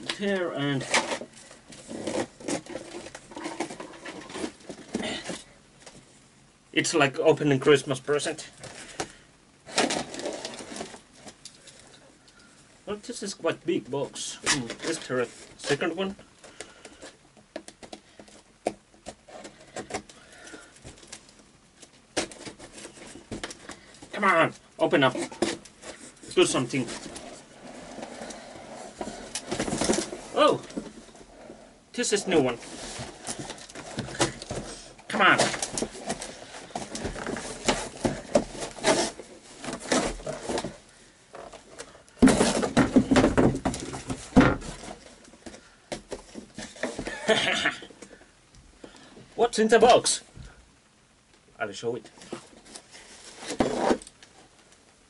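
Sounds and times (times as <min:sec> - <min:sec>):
cardboard scraping and rustling: 0:00.0 - 0:05.5, 0:09.7 - 0:11.4, 0:22.1 - 0:23.9, 0:24.5 - 0:47.4, 0:52.0 - 0:54.5
cardboard box knocks and scrapes: 0:42.2 - 0:45.0.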